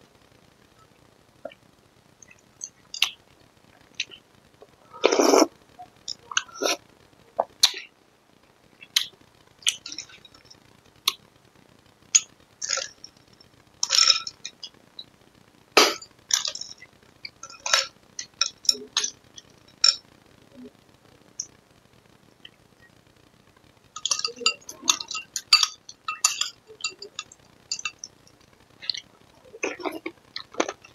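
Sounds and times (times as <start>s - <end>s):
metal spoon clinking on glass bowls: 13.8s - 14.4s, 24.0s - 28.2s.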